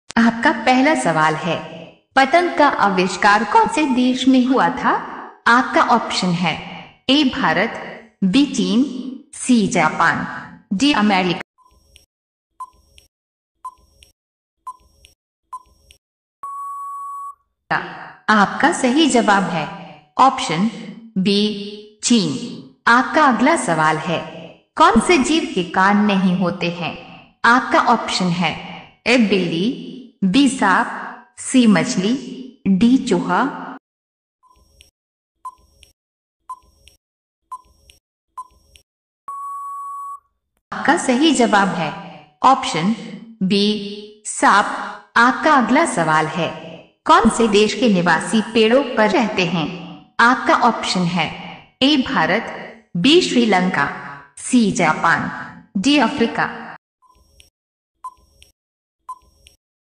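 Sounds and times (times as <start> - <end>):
long steady beep: 16.4 - 17.4, 39.3 - 40.2
short beeps: 16.4 - 17.4, 39.3 - 40.2.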